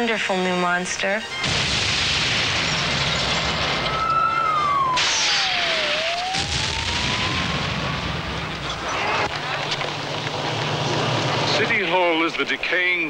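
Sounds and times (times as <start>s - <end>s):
explosion roar: 1.4s - 9.6s
siren-like sliding tone: 3.9s - 7.5s
fast-moving vehicles: 7.8s - 12.8s.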